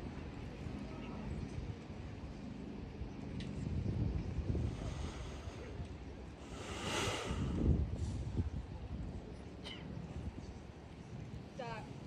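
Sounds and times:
wind buffeting microphone: 2.8s - 12.0s.

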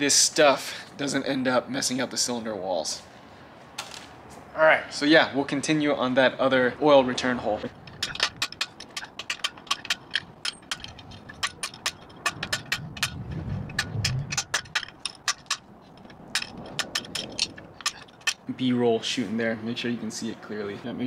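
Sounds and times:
hand tool scraping metal: 7.2s - 19.3s.

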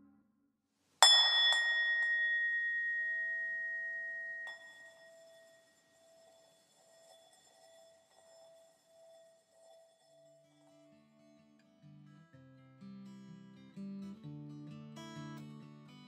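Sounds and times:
bell-like tone ringing: 1.0s - 10.9s.

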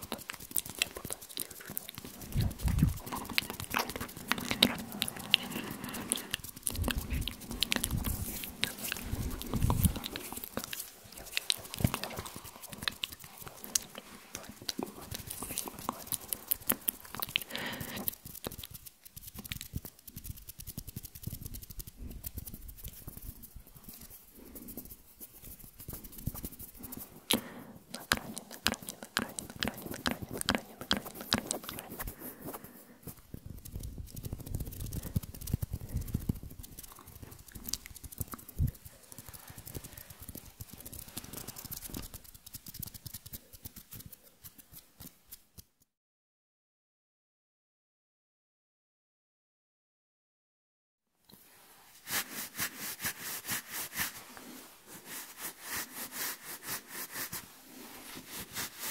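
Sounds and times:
soft wet mouth clicks: 0.0s - 23.1s, 25.8s - 32.2s, 33.1s - 45.2s.

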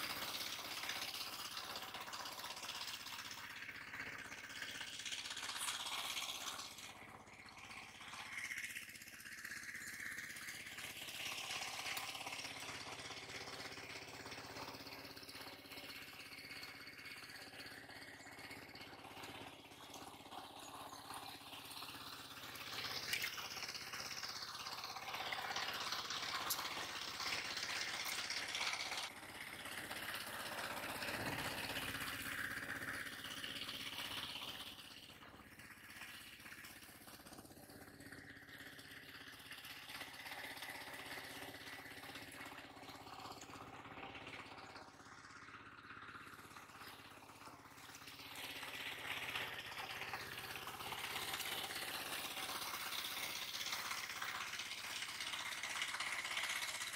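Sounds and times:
engine running steadily: 0.0s - 56.9s.

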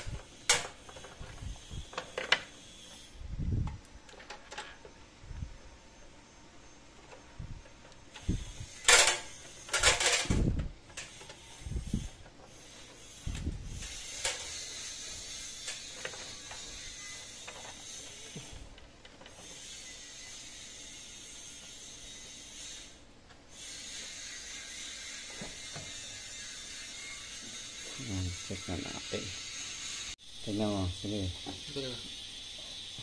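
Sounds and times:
steady hiss: 28.1s - 33.0s.

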